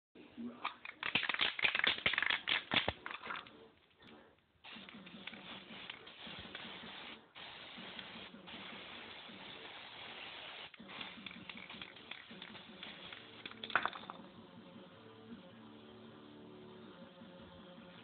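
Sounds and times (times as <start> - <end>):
spray can ball rattling: 0.7 - 3.5, 4.6 - 14.4
spray paint hissing: 4.6 - 13.8.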